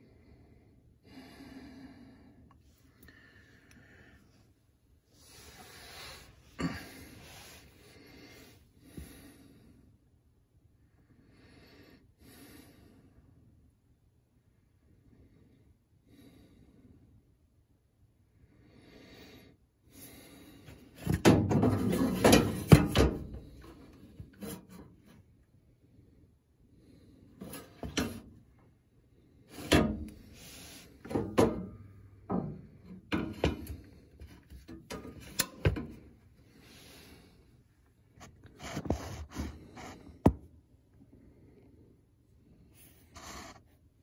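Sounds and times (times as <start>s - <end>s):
rubbing and scraping on sheet metal: 21.5s - 23.0s.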